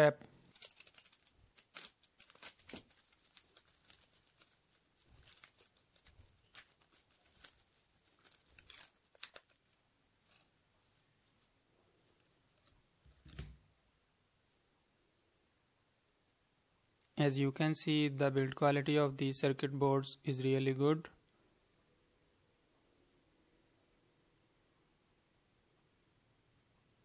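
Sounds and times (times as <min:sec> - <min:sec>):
bubble wrap crinkling: 0:00.4 - 0:13.6.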